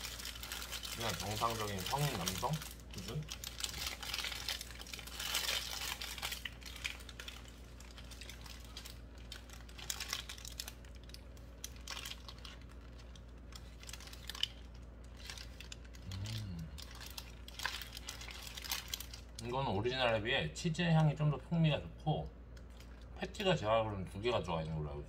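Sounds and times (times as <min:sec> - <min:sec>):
wet chewing: 0:00.0 - 0:19.4
paper wrapper crinkling: 0:00.0 - 0:19.6, 0:22.5 - 0:23.2
person humming: 0:16.0 - 0:16.8.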